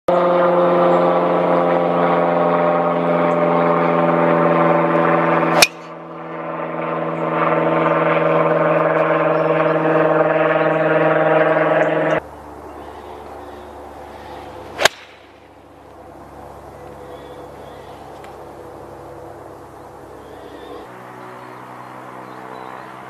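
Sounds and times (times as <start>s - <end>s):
mechanical drone: 0.1s - 23.0s
golf ball struck crack: 5.5s - 6.0s, 14.7s - 15.5s.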